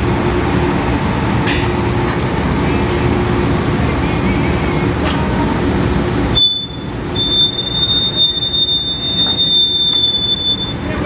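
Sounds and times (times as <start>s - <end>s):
machinery running: 0.0s - 11.0s
high-pitched metallic squeal: 6.4s - 11.0s.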